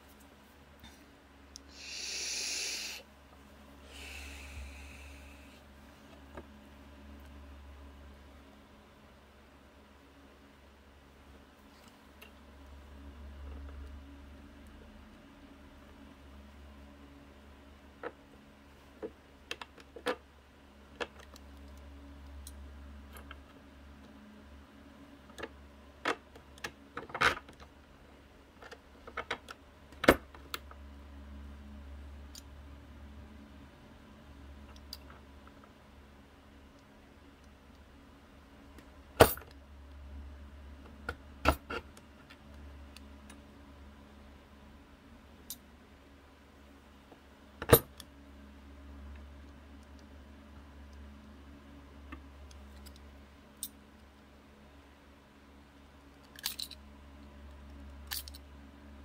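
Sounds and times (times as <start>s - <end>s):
low steady hum: 0.0s - 59.0s
metal parts clicking on workbench: 56.2s - 56.8s, 58.1s - 58.4s.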